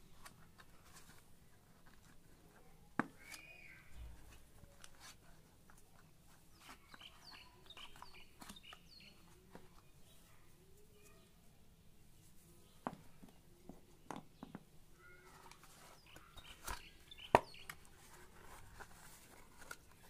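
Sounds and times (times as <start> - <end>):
handling cardboard and cable: 0.0 - 20.0
faint bird chirps: 3.1 - 4.3, 6.5 - 11.4, 14.4 - 17.8.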